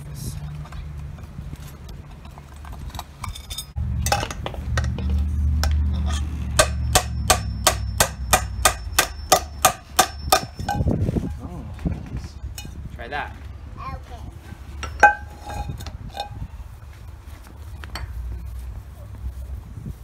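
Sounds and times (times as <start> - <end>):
hammer striking metal saucepan: 6.5 - 10.9, 14.8 - 16.3.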